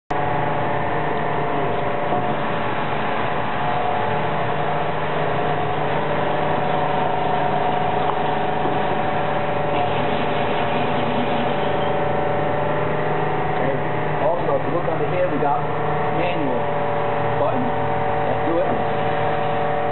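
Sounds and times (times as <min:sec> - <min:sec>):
constant tones: 0:00.6 - 0:19.9
paper cutter motor humming: 0:01.1 - 0:12.8.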